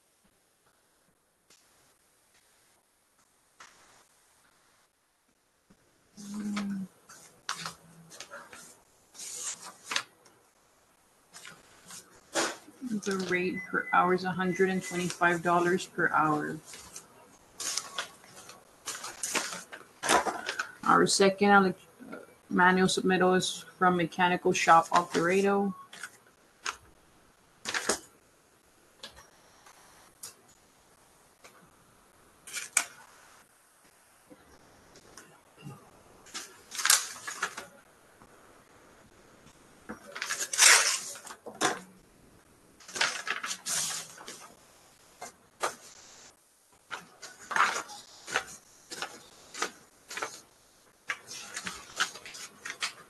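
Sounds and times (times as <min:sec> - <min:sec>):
paper rustling: 0:06.2 - 0:10.3, 0:11.3 - 0:13.4, 0:14.8 - 0:20.8, 0:24.8 - 0:26.8, 0:27.6 - 0:28.1, 0:36.3 - 0:37.8, 0:39.9 - 0:41.9, 0:42.8 - 0:44.6, 0:45.2 - 0:46.0, 0:46.8 - 0:53.0.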